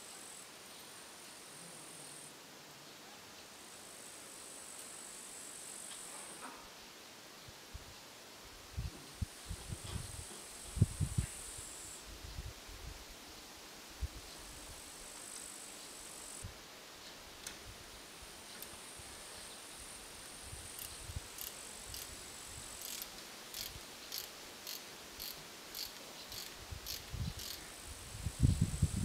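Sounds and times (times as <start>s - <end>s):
high insect buzzing: 18.4s - 29.0s
low wind rumble: 26.6s - 29.0s.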